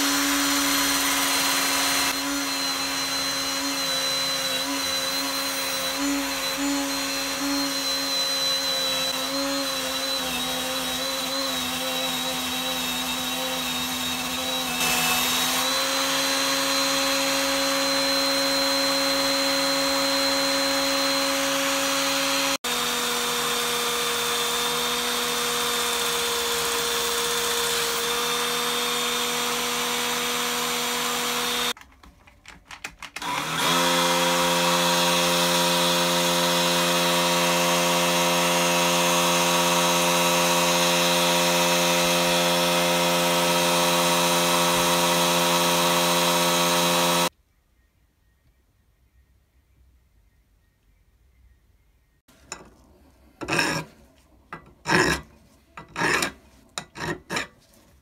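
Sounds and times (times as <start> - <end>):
drill spinning wire brush on metal: 0.0 - 31.8, 33.2 - 47.3, 52.3 - 52.8, 53.4 - 58.0.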